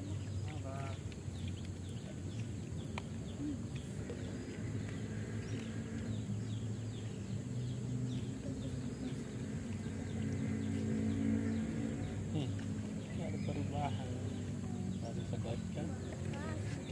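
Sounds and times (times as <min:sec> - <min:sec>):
bird chirping: 0:00.0 - 0:16.9.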